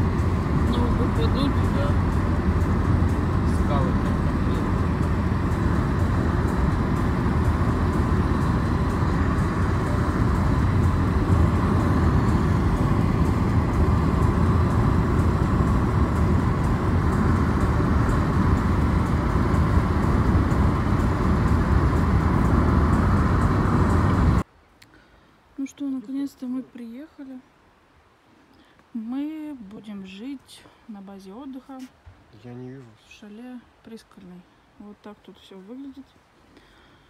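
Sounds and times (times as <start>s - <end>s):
car road noise from inside cabin: 0.0s - 24.5s.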